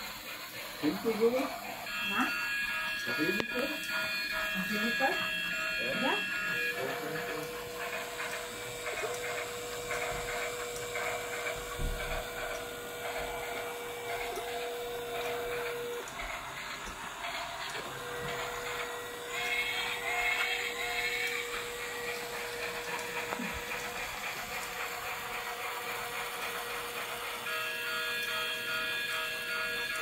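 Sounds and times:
small electric motor whirring: 0.0 - 30.0.

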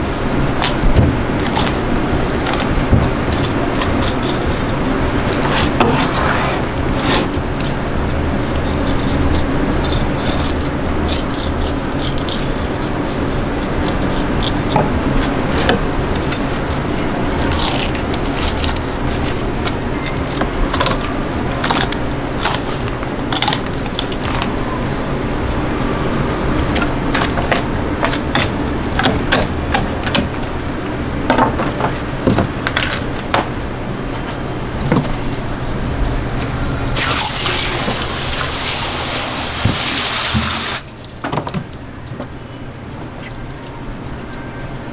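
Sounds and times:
low mechanical hum: 0.0 - 44.9
knife clicking and scraping fish: 1.4 - 6.0, 7.1 - 24.5, 26.6 - 30.4.

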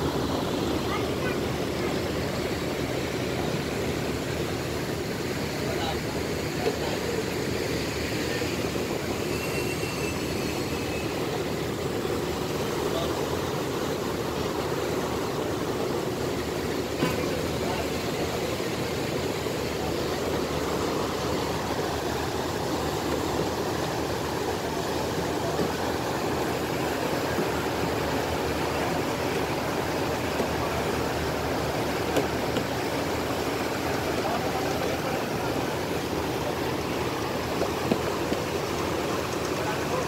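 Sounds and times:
propeller wake rushing: 0.0 - 40.0
ship engines running: 0.0 - 40.0.

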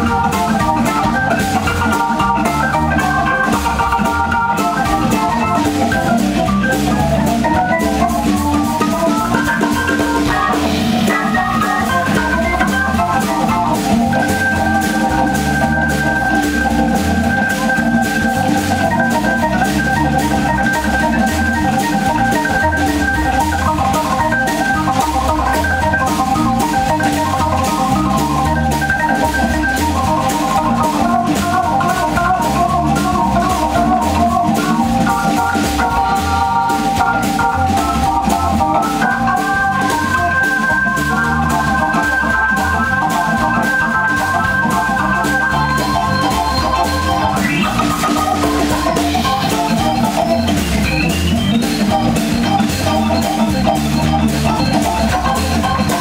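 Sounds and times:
jazz organ chords: 0.0 - 56.0
moving bass line: 0.0 - 56.0.

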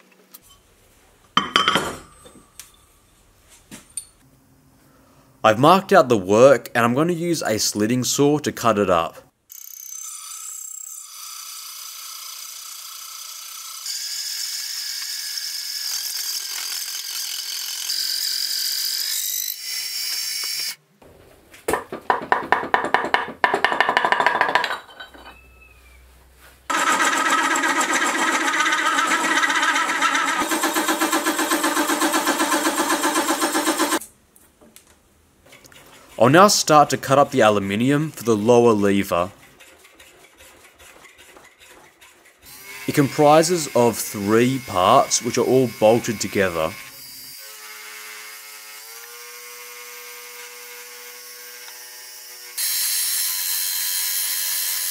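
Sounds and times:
saw whining through metal: 9.5 - 20.8, 26.7 - 34.0, 41.0 - 54.9
rapid clattering knocks: 21.7 - 24.8.

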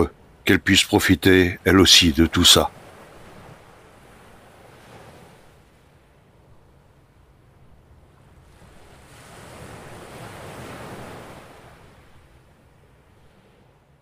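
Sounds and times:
waves washing on a beach: 0.0 - 14.0.

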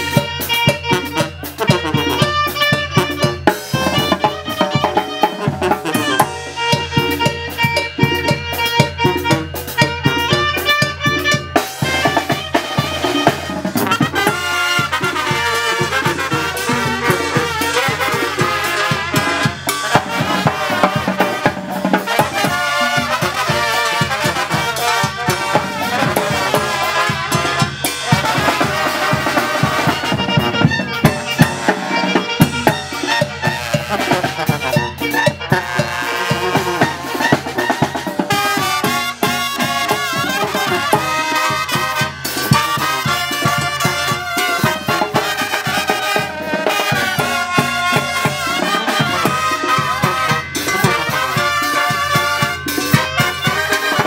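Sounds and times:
live brass band playing: 0.0 - 54.0
percussion and cymbals: 0.0 - 54.0
tuba: 0.0 - 54.0.

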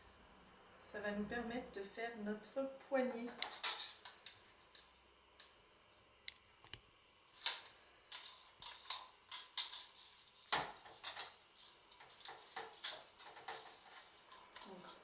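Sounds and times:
cups clicking and rattling: 7.5 - 15.0.

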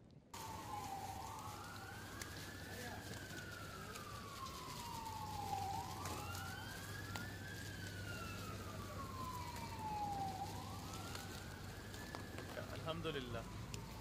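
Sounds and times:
faint siren wailing: 0.4 - 14.0.

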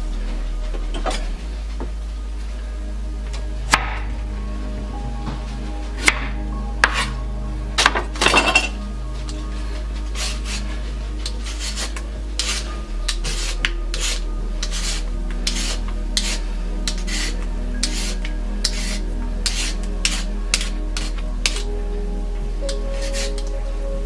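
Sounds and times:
background music: 0.0 - 24.0
peeler scraping vegetable skin: 11.3 - 21.6.

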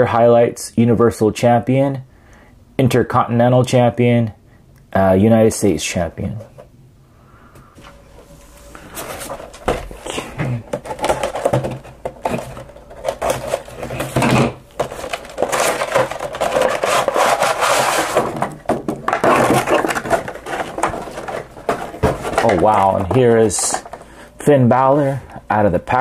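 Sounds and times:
cardboard and plastic rustling: 7.8 - 26.0.

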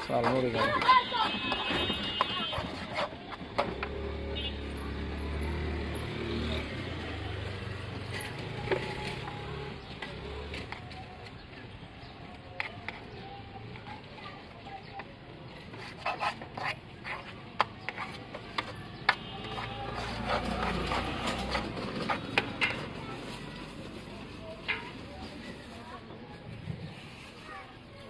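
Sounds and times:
metal spoon scraping steel bowl: 15.8 - 22.8.

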